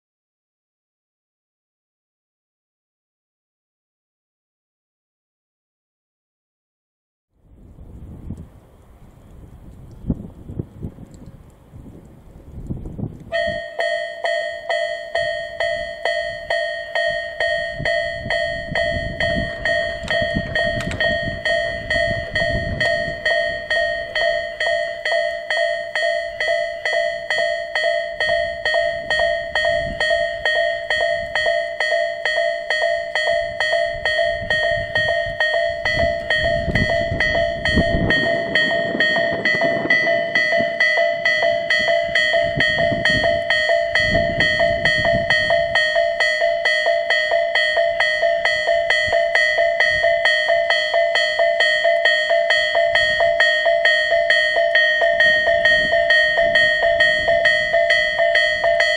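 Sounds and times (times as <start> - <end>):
level crossing warning bell: 13.2 - 58.9.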